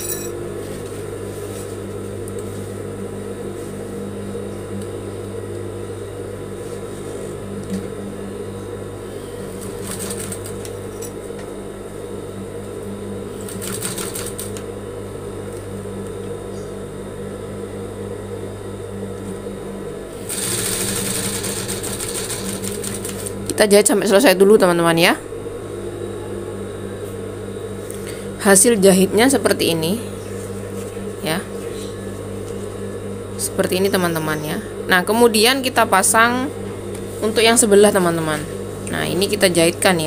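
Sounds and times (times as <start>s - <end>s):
sewing machine stitching cloth: 9.6s - 10.6s, 13.5s - 14.6s, 20.3s - 23.3s.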